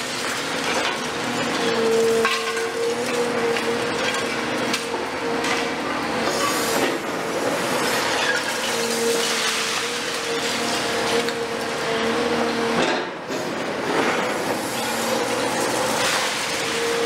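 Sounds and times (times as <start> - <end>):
falling debris clattering: 0.0 - 5.8, 7.8 - 11.6, 14.0 - 17.0
excavator mechanical whine: 0.8 - 17.0.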